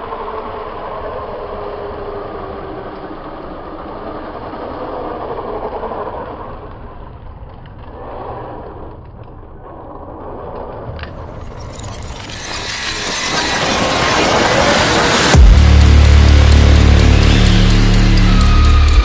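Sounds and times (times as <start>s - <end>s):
toy car running on concrete: 10.2s - 15.4s.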